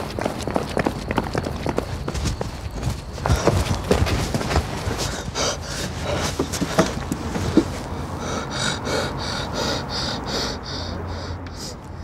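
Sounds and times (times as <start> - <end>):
scuffs and knocks of moving bodies: 0.0 - 8.9
person panting hard: 3.2 - 12.0.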